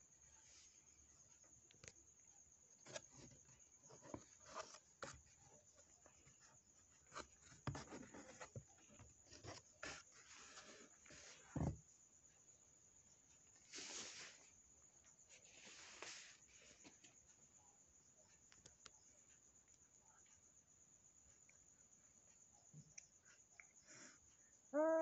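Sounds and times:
soft rustles and knocks: 2.8 - 12.0.

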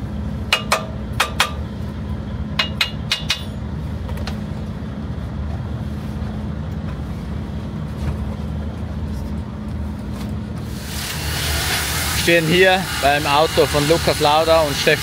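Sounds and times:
steady low hum: 0.0 - 15.0
hammer tapping metal: 0.5 - 1.6, 2.6 - 3.6.

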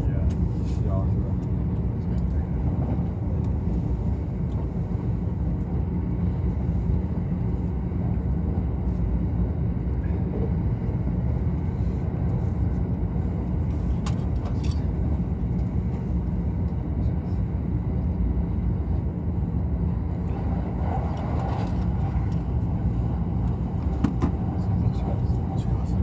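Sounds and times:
train running on rails: 0.0 - 26.0.

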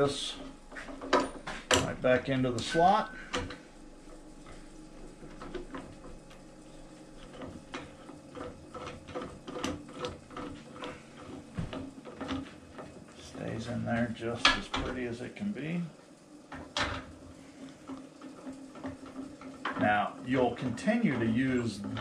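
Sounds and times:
small metal clicks and clunks: 7.2 - 13.0.

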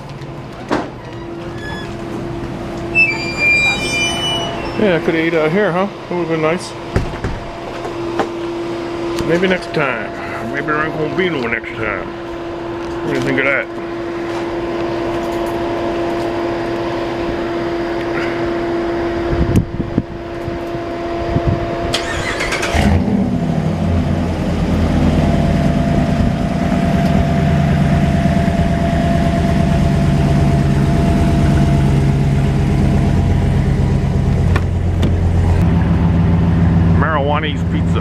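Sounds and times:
engine starter cranking: 21.9 - 23.1
engine idling: 22.0 - 38.0.

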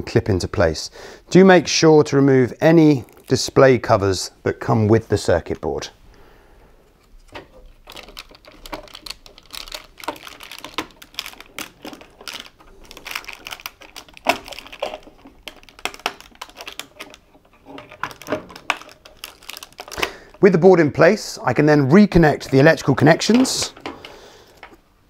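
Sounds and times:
hard plastic clicking and rattling: 7.0 - 20.4.

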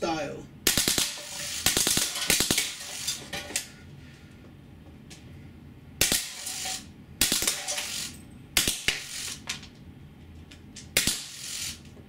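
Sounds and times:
bb machine gun bursts: 0.7 - 3.2.

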